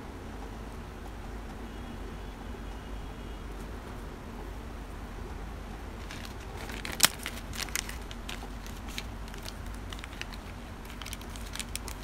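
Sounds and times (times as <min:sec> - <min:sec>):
plastic bag crinkling: 0:05.9 - 0:12.0.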